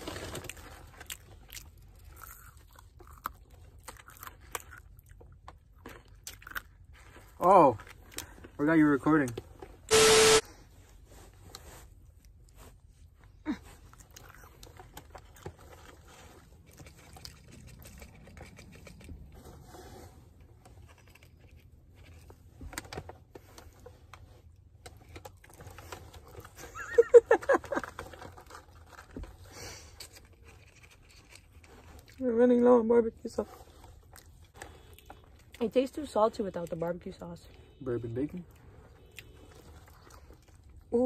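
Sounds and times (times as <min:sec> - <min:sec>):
food wrappers rustling: 0:00.0 - 0:09.6, 0:20.6 - 0:32.6
chewing: 0:00.2 - 0:08.6, 0:13.5 - 0:19.4, 0:27.8 - 0:32.2, 0:33.6 - 0:35.8, 0:38.4 - 0:41.0.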